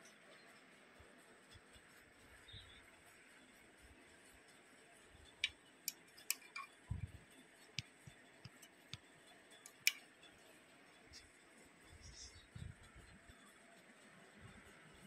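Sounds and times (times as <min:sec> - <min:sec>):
probe tips clicking on metal: 0:05.2 - 0:10.1.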